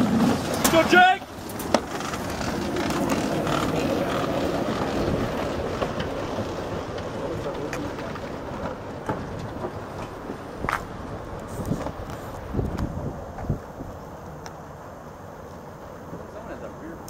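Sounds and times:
velomobiles passing: 0.0 - 17.0
wind on microphone: 10.2 - 14.1.

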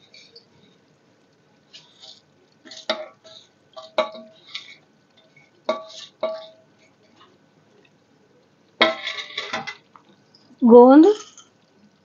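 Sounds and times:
spatula tapping steel bowl: 3.8 - 4.3, 5.7 - 6.6
metal dishware clattering: 3.8 - 4.4, 5.7 - 6.6, 8.8 - 9.8.

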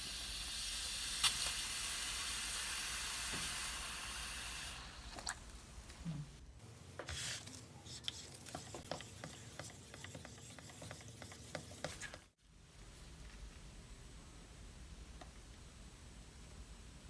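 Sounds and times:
splashy hiss: 0.0 - 5.3
stirrer scraping plastic bucket: 7.1 - 12.4.

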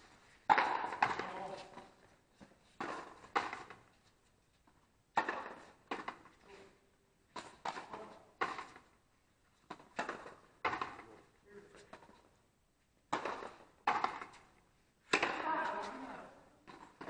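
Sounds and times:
ball cracking off wall: 0.5 - 1.8, 5.2 - 6.3, 9.7 - 11.0, 13.1 - 14.4, 15.1 - 17.0.

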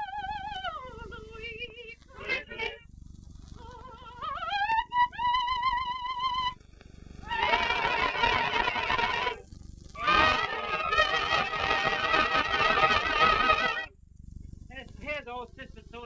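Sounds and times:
high solo singing voice: 0.0 - 2.8, 3.6 - 6.5, 7.3 - 9.4
choir singing: 2.1 - 2.8, 7.3 - 9.4, 10.0 - 13.9.

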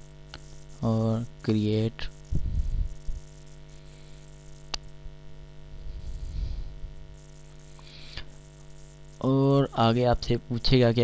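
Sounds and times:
electrical mains hum: 0.0 - 11.0
sharp click: 4.7 - 4.9.

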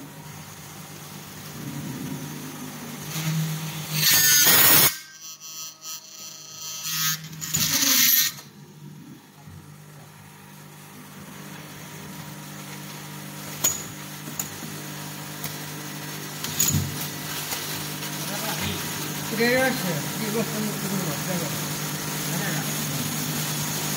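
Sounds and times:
steady machine hum: 0.0 - 23.9
screw machine bursts: 3.9 - 8.5.

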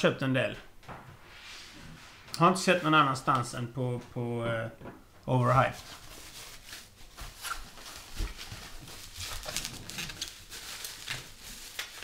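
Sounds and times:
bubble wrap crinkling: 5.5 - 12.0.

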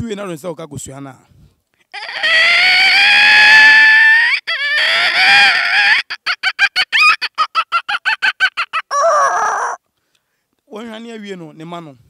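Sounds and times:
boy imitating chicken clucks: 2.0 - 3.6, 4.2 - 9.8.

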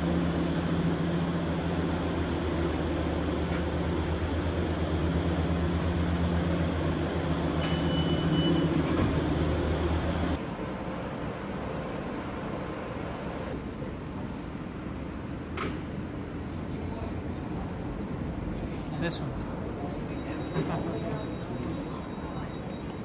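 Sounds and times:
short high beep: 7.6 - 8.8.

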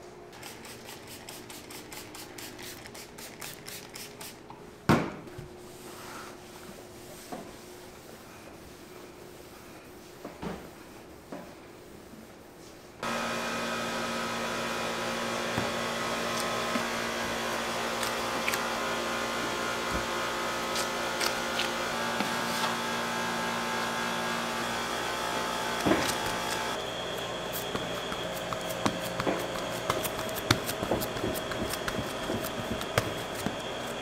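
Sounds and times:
machine motor humming: 13.0 - 34.0.

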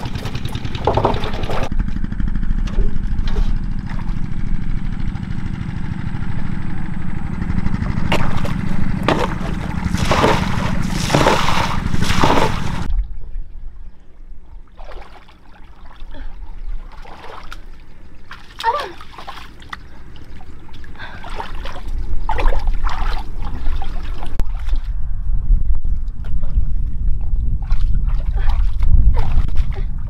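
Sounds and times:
small engine running: 0.0 - 12.9
water splashing: 3.4 - 4.4, 7.9 - 12.9, 14.7 - 24.9.

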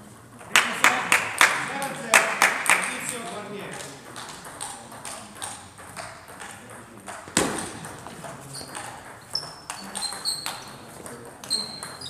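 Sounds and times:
table tennis ball clicking: 3.0 - 12.0
shoes squeaking on floor: 7.1 - 12.0.

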